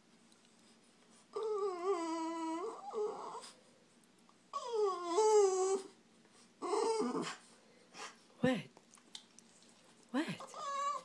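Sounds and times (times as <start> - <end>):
dog whining: 1.3 - 3.6, 4.5 - 6.0, 6.6 - 8.1, 10.4 - 11.0.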